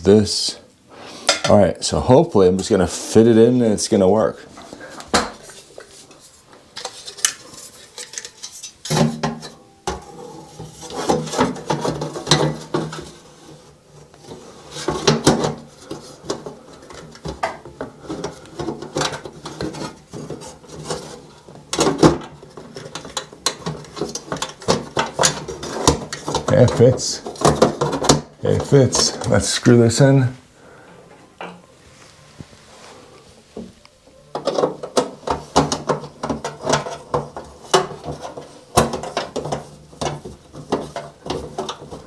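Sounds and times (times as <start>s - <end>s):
metal scraping: 4.5s - 33.6s.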